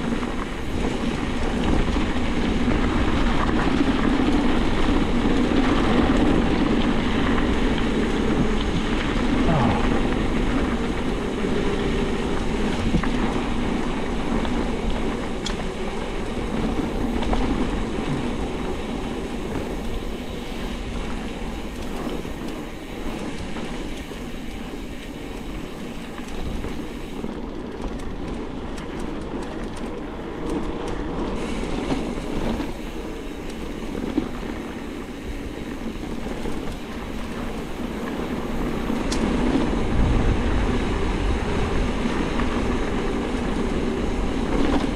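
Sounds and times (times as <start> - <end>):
bike rattling and knocking: 0.0 - 44.9
bike rushing over dirt trail: 0.0 - 44.9.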